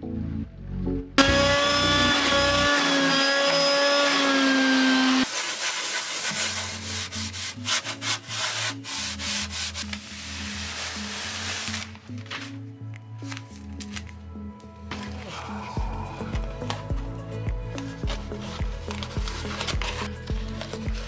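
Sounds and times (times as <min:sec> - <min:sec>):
sponge scrubbing: 0:04.6 - 0:12.0.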